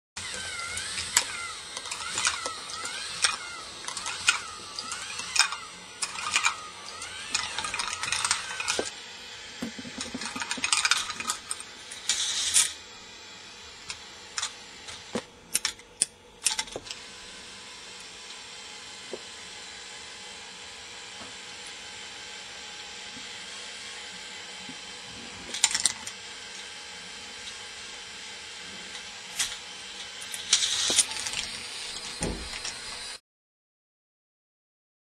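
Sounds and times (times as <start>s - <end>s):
plastic balls clattering on tracks: 0.4s - 8.9s, 9.6s - 12.7s, 30.2s - 33.1s.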